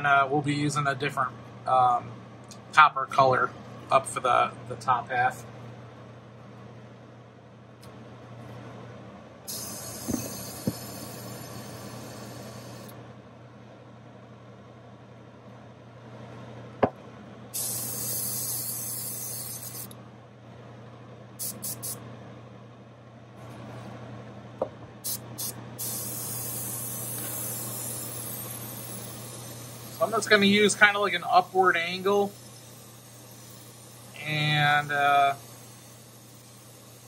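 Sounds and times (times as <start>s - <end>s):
exhaust fan humming: 0.0s - 37.0s
airbrush hissing: 9.5s - 13.0s, 17.5s - 20.0s, 21.4s - 22.0s, 25.0s - 37.0s.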